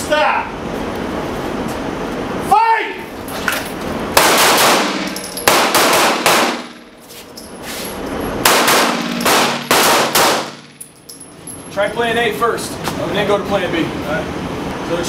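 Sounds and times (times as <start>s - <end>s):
pistol shots with echo: 4.2s - 6.8s, 8.4s - 10.8s.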